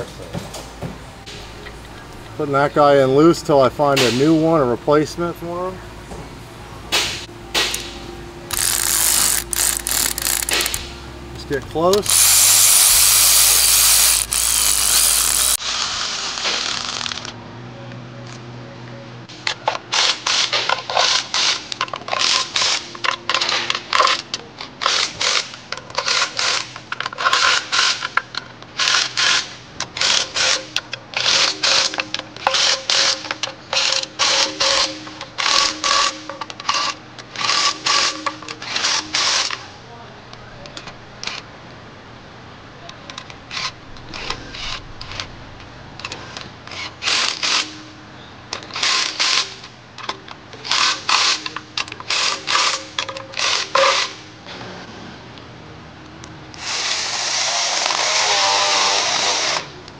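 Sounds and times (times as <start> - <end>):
loud steady noise: 6.7 - 16.9
ratchet clicking: 8.5 - 10.9, 11.6 - 15.6.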